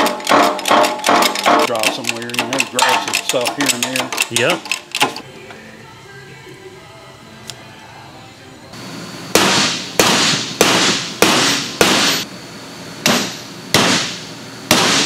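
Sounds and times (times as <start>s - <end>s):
hammer striking steel driver: 0.0s - 4.5s.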